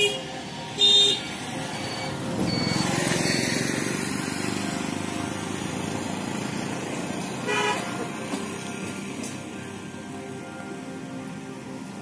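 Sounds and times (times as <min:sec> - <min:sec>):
vehicle passing on road: 0:01.0 - 0:10.0.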